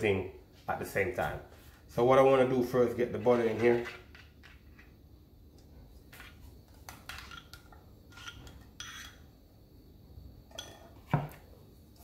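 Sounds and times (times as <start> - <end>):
spoon scraping and clinking bowl: 7.1 - 9.3, 10.5 - 11.0.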